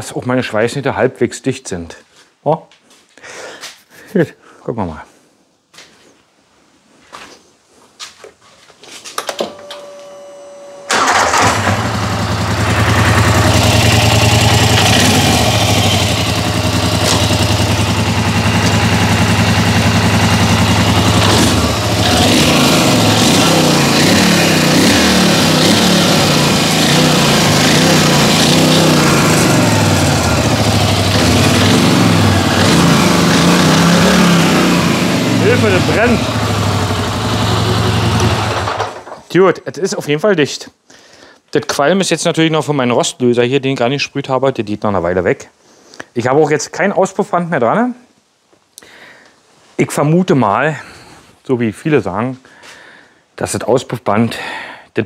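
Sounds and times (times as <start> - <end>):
starter whine: 9.3 - 39.2
engine idling and revving: 10.9 - 39.0.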